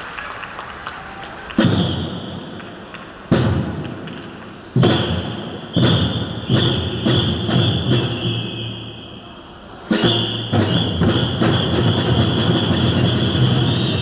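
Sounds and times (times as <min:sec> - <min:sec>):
large drums beating: 0:03.2 - 0:08.3, 0:09.9 - 0:14.0.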